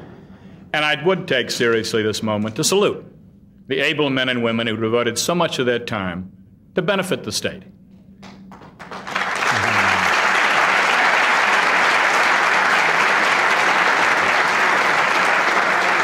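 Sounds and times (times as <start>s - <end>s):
audience applauding: 8.2s - 16.0s.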